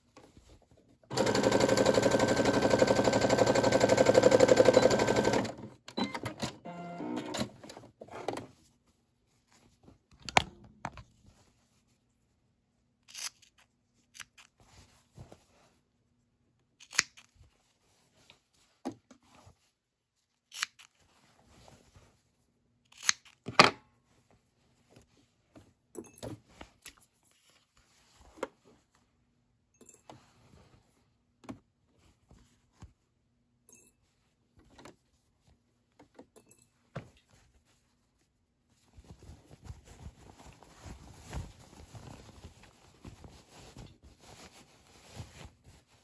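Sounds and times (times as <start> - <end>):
small scissors snipping: 20.5 - 21.0, 22.9 - 23.4
cotton fabric rustling: 37.3 - 46.0.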